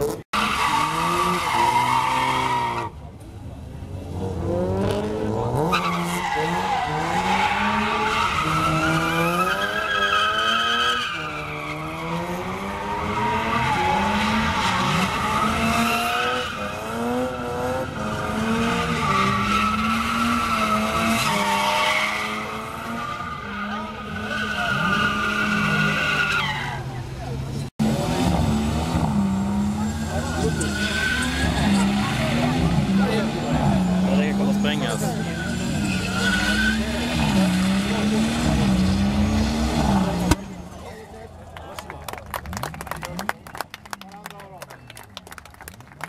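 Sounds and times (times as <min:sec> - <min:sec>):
tyres squealing on asphalt: 0:00.4 - 0:03.0, 0:05.6 - 0:27.7, 0:28.8 - 0:40.8
car engine revving: 0:03.8 - 0:26.5, 0:27.2 - 0:40.7.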